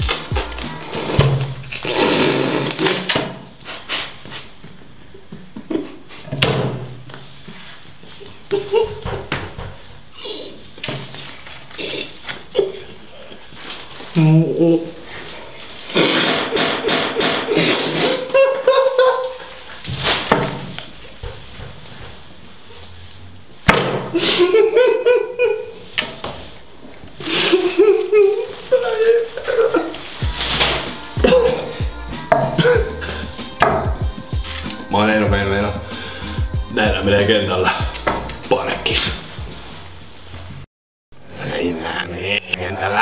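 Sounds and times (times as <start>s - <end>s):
man spluttering and coughing: 28.8s - 30.0s, 31.2s - 33.4s
man humming with full mouth: 30.2s - 34.9s
man groaning: 31.2s - 33.4s.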